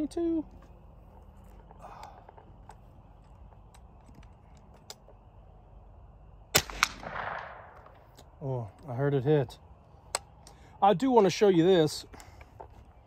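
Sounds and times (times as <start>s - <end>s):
rifle shot crack: 6.5s - 8.1s
bullet hitting target: 6.6s - 8.0s.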